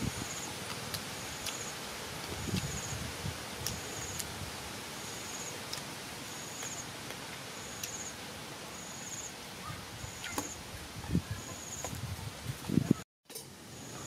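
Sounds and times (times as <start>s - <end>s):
background hiss: 0.0s - 14.0s
insect buzzy chirps: 1.2s - 4.3s, 5.0s - 5.6s, 6.2s - 6.9s, 7.6s - 9.4s.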